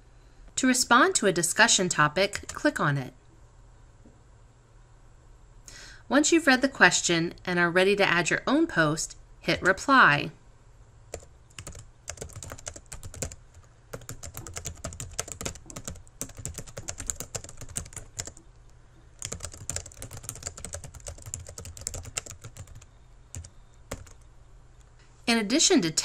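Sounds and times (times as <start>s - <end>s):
computer keyboard typing: 2.3s - 2.7s, 11.1s - 24.3s.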